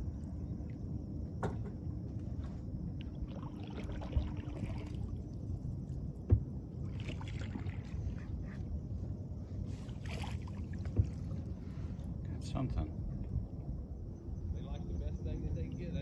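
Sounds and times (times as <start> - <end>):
water lapping against kayak: 2.2 - 9.0, 9.6 - 12.3
dull knocks: 6.3 - 6.5.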